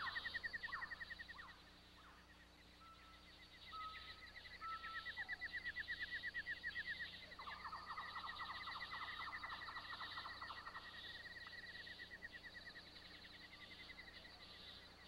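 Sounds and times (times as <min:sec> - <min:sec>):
rapid rattling call: 0:00.0 - 0:02.2.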